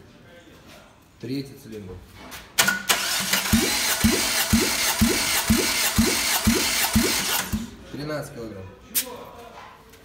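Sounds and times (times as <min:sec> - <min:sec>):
starter motor cranking engine: 0:02.7 - 0:07.8.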